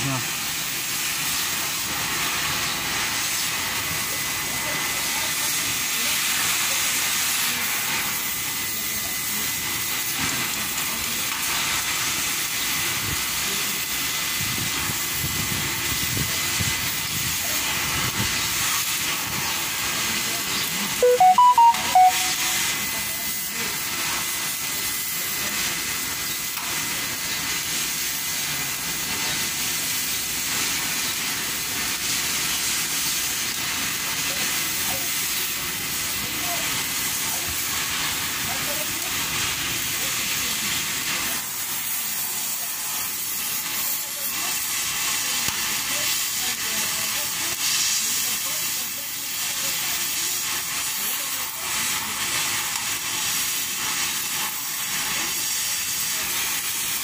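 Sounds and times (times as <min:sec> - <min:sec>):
welding arc crackling hiss: 0:00.0 - 0:57.0
loud beeping tones: 0:21.0 - 0:22.7.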